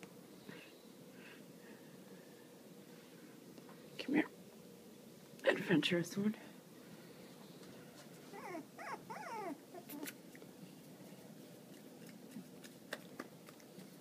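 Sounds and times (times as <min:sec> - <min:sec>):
puppies whimpering: 0:08.3 - 0:10.2.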